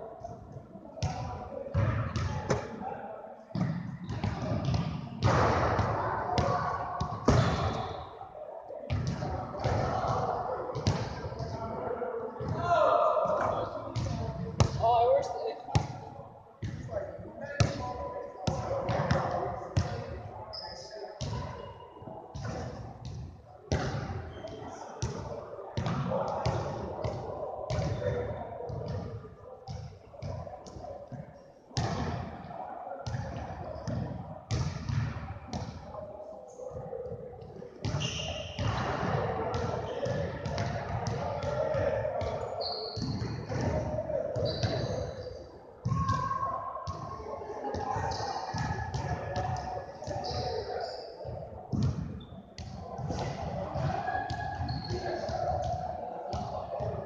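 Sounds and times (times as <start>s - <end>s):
shoe squeaks: 38.0s - 38.6s, 42.6s - 43.1s, 44.4s - 45.3s, 50.2s - 50.7s.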